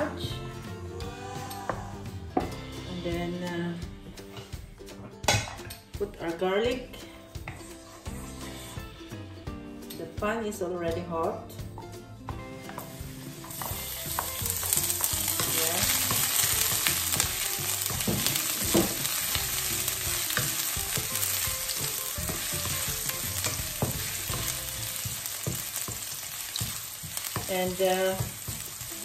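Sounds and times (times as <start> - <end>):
garlic sizzling in oil: 12.4 - 29.0.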